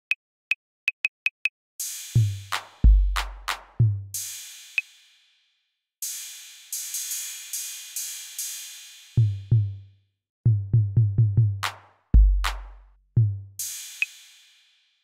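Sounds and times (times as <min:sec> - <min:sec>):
drum machine cymbals ringing: 0:01.8 - 0:03.6, 0:13.6 - 0:14.6.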